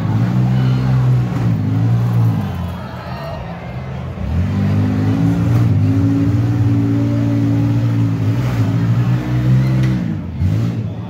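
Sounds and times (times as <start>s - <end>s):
engine revving hard: 4.1s - 11.0s.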